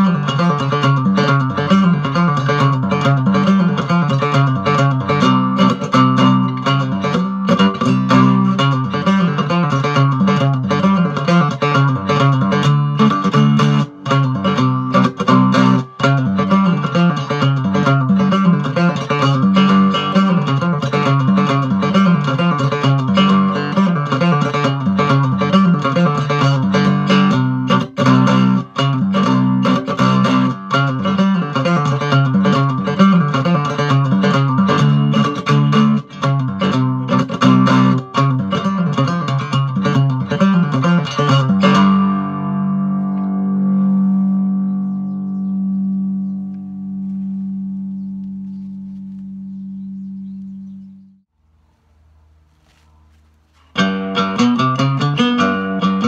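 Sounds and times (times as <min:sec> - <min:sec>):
cigar box guitar plucked tune: 0:00.0 - 0:51.2, 0:52.4 - 0:56.0
guitar chord ringing: 0:00.0 - 0:51.2, 0:53.0 - 0:56.0.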